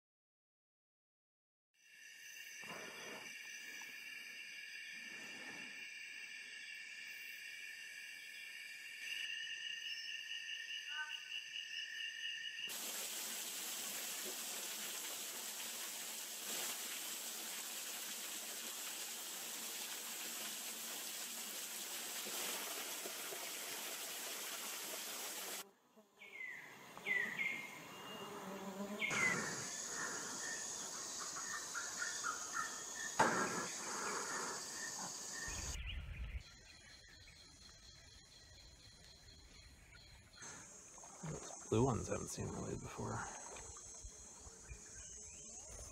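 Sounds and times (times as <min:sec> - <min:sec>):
insects trilling: 0:01.8 - 0:24.0, 0:26.2 - 0:45.9
steady even hiss: 0:12.7 - 0:25.6, 0:29.0 - 0:35.8.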